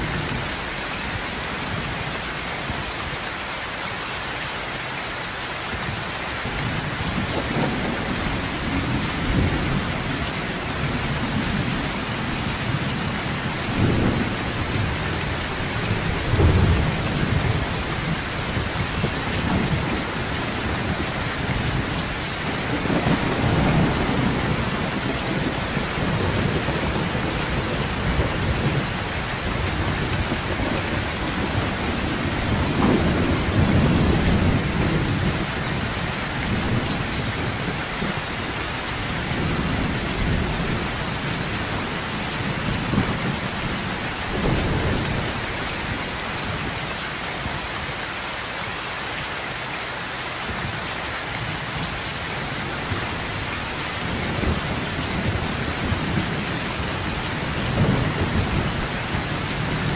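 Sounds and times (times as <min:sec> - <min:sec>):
heavy rain on a metal roof: 0:00.0 - 0:59.9
thunder rumbling: 0:06.5 - 0:46.8, 0:52.8 - 0:59.9.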